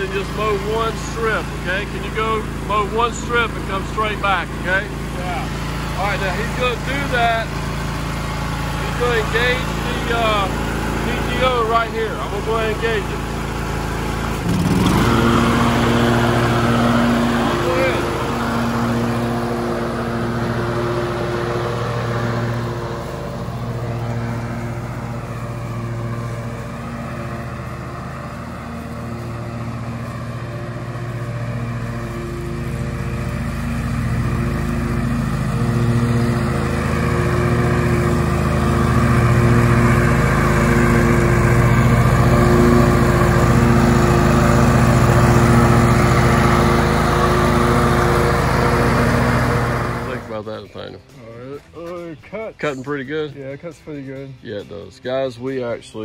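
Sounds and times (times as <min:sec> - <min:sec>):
riding lawn mower engine: 0:00.0 - 0:56.0.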